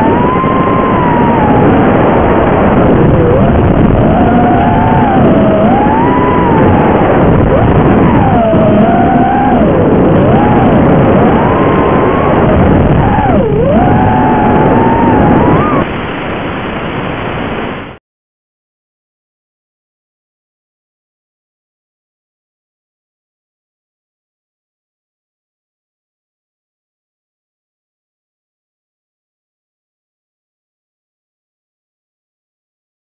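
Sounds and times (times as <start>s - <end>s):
drone motors whining: 0.0s - 15.9s.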